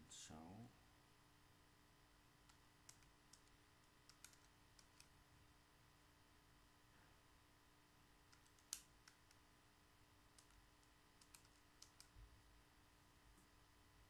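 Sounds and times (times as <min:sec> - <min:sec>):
small clicks: 0:02.4 - 0:05.1, 0:08.3 - 0:09.4, 0:10.3 - 0:12.2.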